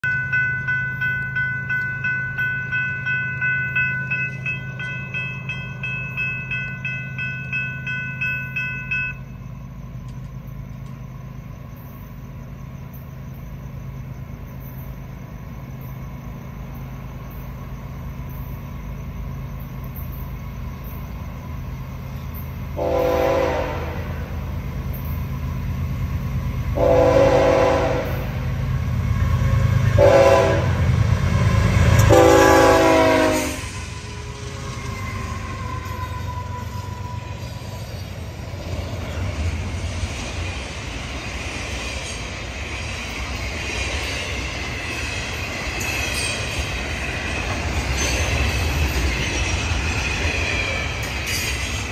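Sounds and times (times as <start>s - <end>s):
diesel locomotive rumble: 0.0s - 51.9s
railroad crossing bells ringing: 0.0s - 51.9s
locomotive air horn blasts: 22.8s - 24.3s, 26.8s - 28.4s, 29.9s - 30.9s, 32.0s - 33.7s.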